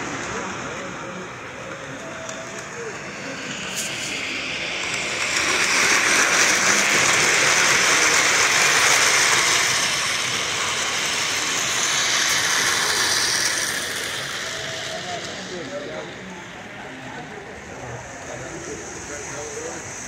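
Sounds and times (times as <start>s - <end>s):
model train wheels rolling on track: 0.0s - 20.0s.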